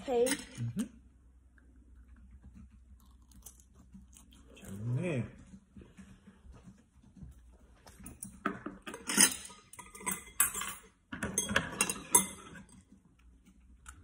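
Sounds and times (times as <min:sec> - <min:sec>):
utensils clinking against dishes: 0:08.2 - 0:12.8.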